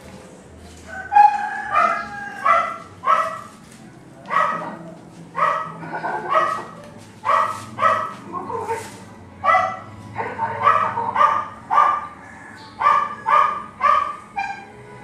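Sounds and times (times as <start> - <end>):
dog barking: 1.2 - 3.5, 4.3 - 4.8, 5.4 - 8.8, 9.4 - 12.2, 12.8 - 14.7.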